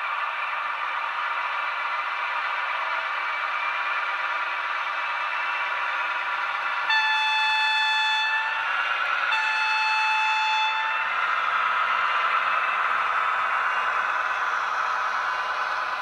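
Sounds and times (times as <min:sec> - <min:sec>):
diesel locomotive running: 0:00.0 - 0:16.0
locomotive horn blasts: 0:06.9 - 0:08.7, 0:09.3 - 0:11.1.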